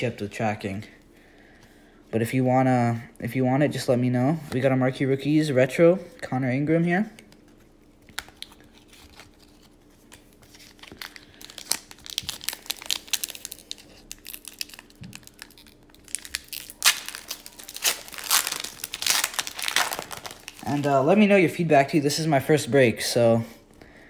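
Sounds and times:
foil wrapper crinkling and tearing: 7.8s - 21.1s.

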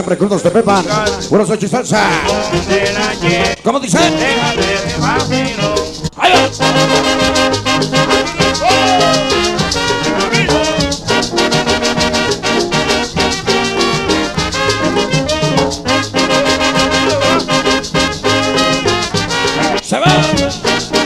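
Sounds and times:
percussion beat: 0.3s - 21.0s
horns: 2.1s - 21.0s
loud dance music: 8.2s - 9.4s, 16.2s - 17.6s.

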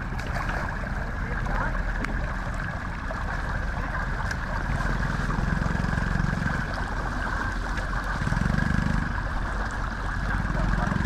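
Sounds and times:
low hum: 0.0s - 11.0s
water rushing through channel: 0.0s - 11.0s
water splashing around legs: 0.0s - 11.0s.

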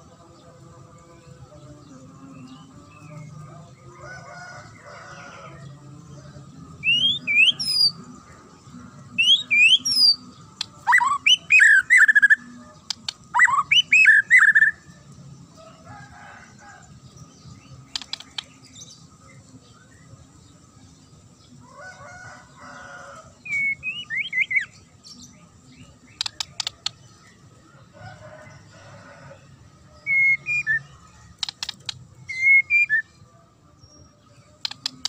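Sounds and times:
bird singing whistled phrases: 30.1s - 30.9s, 32.3s - 33.1s.

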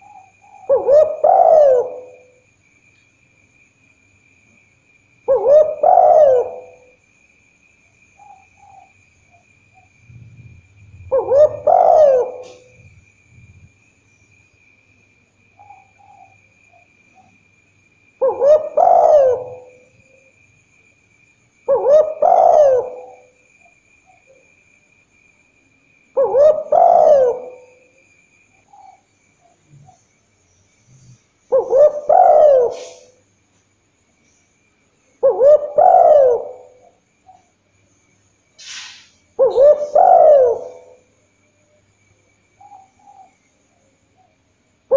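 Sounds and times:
dove cooing: 0.0s - 2.4s, 5.3s - 7.0s, 9.8s - 13.7s, 18.2s - 20.3s, 21.7s - 23.4s, 26.2s - 28.0s, 31.1s - 33.2s, 35.2s - 37.4s, 39.4s - 41.1s.

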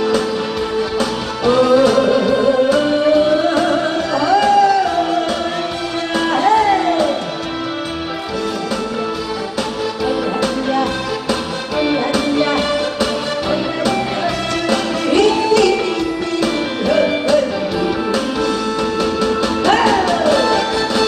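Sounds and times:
music with steady beat: 0.0s - 21.0s
woman singing into microphone: 1.4s - 7.4s, 13.4s - 18.5s, 19.6s - 20.8s.

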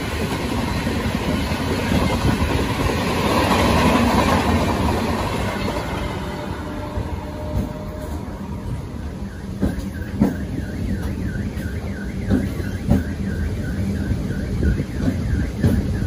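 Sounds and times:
train rumble: 0.0s - 16.0s
electronic warbling alarm: 8.0s - 16.0s.

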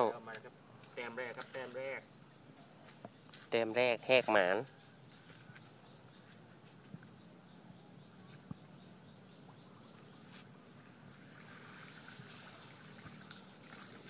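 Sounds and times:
water dripping off a net: 10.4s - 14.0s.

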